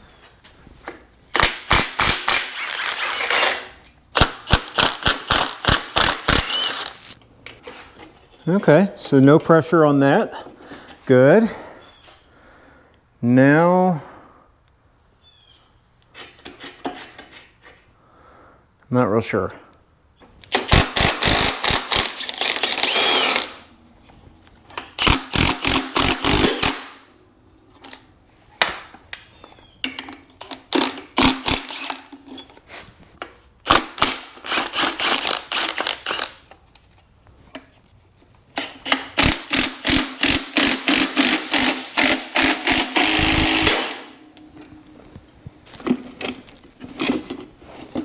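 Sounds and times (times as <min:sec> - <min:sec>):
impact wrench hammering: 0:24.8 - 0:26.9, 0:38.6 - 0:44.2.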